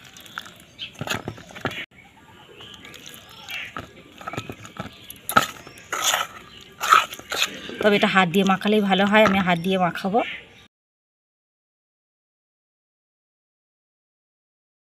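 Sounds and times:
spoon stirring batter: 2.5 - 9.8.

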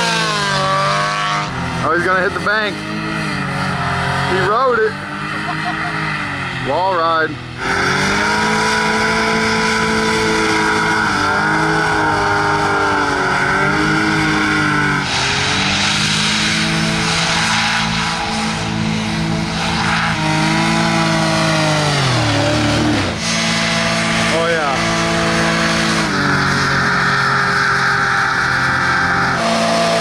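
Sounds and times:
rushing noise: 7.4 - 30.0.

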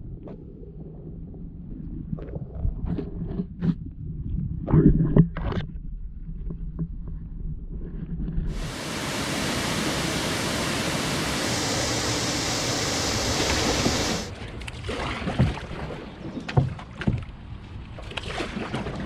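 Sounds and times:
water rushing through rapids: 8.5 - 14.3
canoe paddling on water: 8.5 - 19.0
paddle splashes and knocks: 13.3 - 17.4, 18.0 - 19.0.

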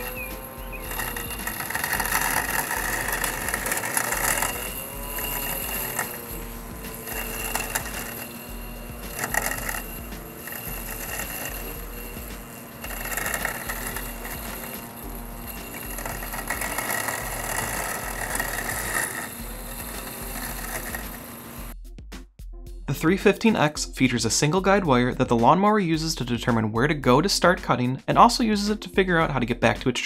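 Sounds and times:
robotic lawn mower motor whine: 0.0 - 21.7
rough grass cutting noise: 0.0 - 21.7.

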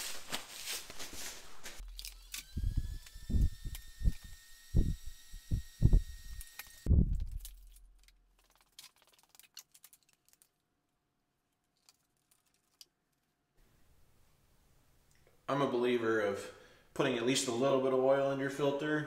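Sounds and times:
faint steady whine: 2.0 - 6.9
low thuds: 2.6 - 6.2, 6.9 - 8.0.

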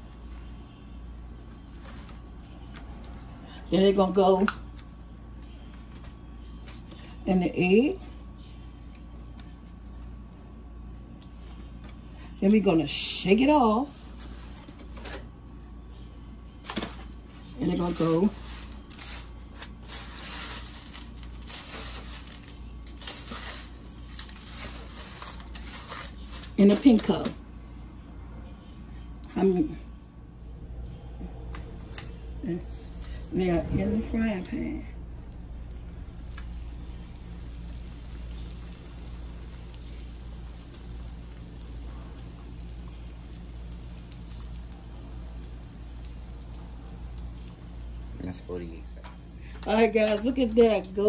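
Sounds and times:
breadcrumbs rustling and crunching: 17.8 - 27.4, 31.1 - 46.4
chicken sizzling in oil: 36.3 - 48.2.

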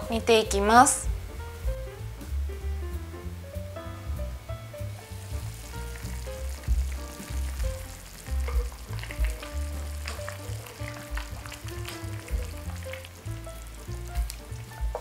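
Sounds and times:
soft background music: 0.0 - 15.0
stew simmering and bubbling: 4.6 - 15.0.

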